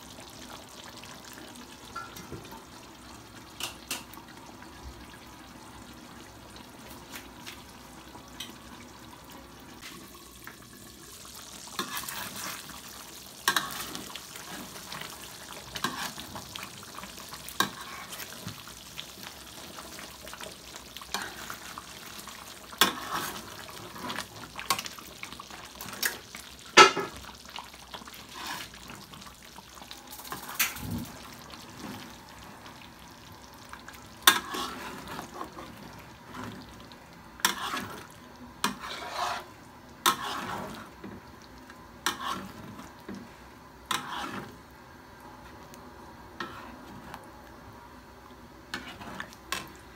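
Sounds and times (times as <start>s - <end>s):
sauce bubbling in a wok: 0.0s - 49.9s
metal spatula scraping a wok: 28.2s - 28.7s, 34.3s - 35.6s, 37.4s - 40.8s, 42.0s - 42.7s, 43.9s - 44.6s, 48.7s - 49.7s.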